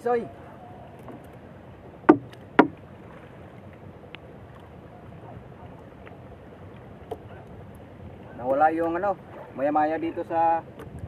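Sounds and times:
wind: 0:00.0 - 0:11.0
sharp knocks: 0:02.1 - 0:02.8.

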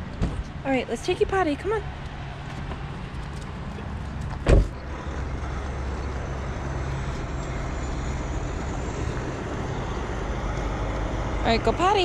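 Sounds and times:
idling vehicle engines: 0:00.0 - 0:12.0
car door shutting: 0:04.3 - 0:04.8.

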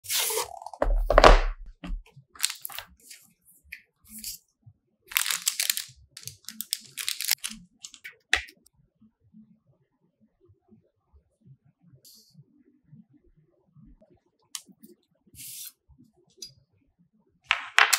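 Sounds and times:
packaging rustling and crinkling: 0:00.0 - 0:03.0, 0:05.1 - 0:08.0.

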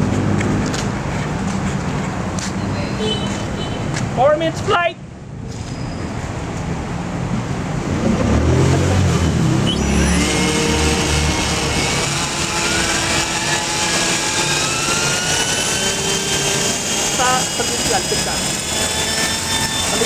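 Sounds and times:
rotor low whirr: 0:07.6 - 0:20.0
motor and gear whine: 0:08.2 - 0:20.0.

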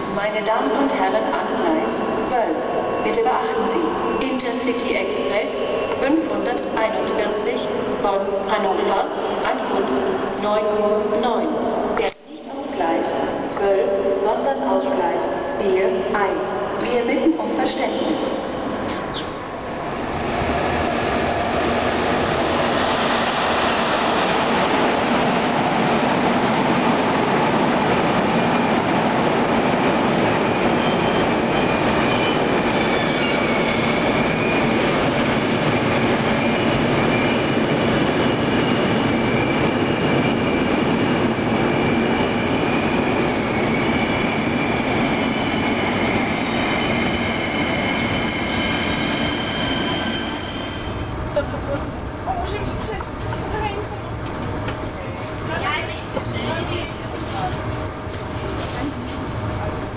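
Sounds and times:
high-pitched wheel squeal: 0:47.5 - 0:51.0.

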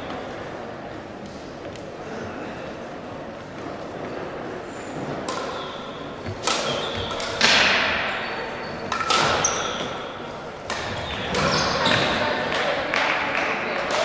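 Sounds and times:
rackets striking shuttlecock: 0:05.2 - 0:14.0.

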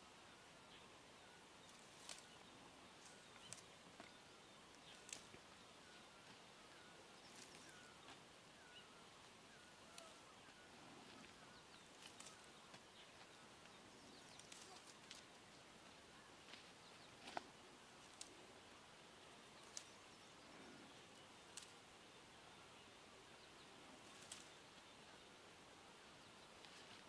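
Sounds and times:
distant bird calls: 0:00.0 - 0:27.0
faint open air hiss: 0:00.0 - 0:27.0
light sharp ticks: 0:01.6 - 0:02.4, 0:03.0 - 0:05.4, 0:11.2 - 0:12.8, 0:13.6 - 0:15.4, 0:17.2 - 0:18.4, 0:19.6 - 0:20.0, 0:21.5 - 0:21.8, 0:24.1 - 0:24.6.

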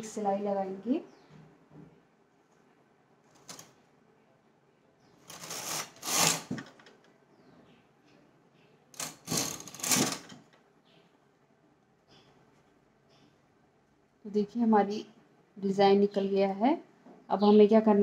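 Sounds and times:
knitting machine carriage clatter: 0:05.3 - 0:06.8, 0:09.0 - 0:10.4.

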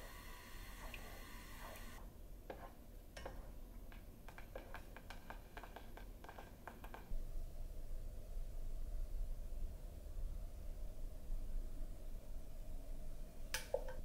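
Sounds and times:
food preparation clicks and taps: 0:03.2 - 0:07.1.

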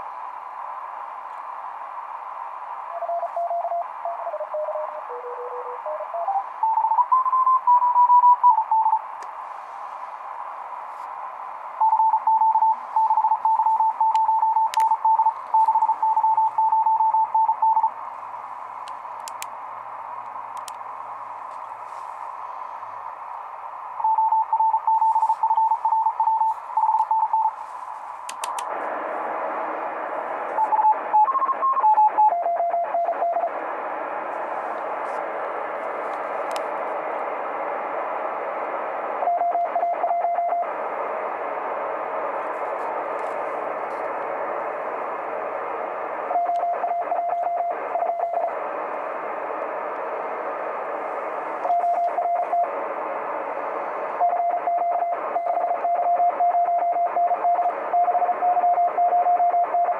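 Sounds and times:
radio band hiss: 0:00.0 - 0:59.9
morse code beeping: 0:03.0 - 0:09.0, 0:11.8 - 0:17.9, 0:24.0 - 0:27.6.

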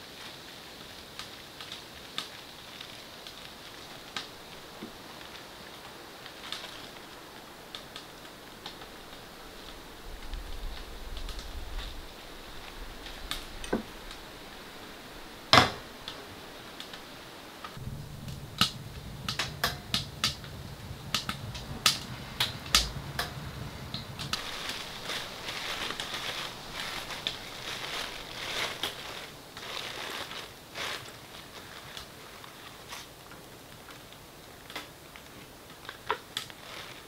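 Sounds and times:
soft hissy rustle: 0:00.0 - 0:37.0
wood fire crackling and popping: 0:00.0 - 0:37.0
low hum: 0:17.7 - 0:29.4.

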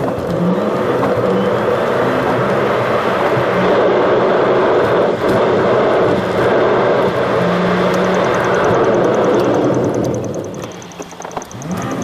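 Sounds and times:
car engine running: 0:00.0 - 0:12.0
tyre and road noise: 0:00.0 - 0:12.0
fast high ticking: 0:06.6 - 0:12.0.

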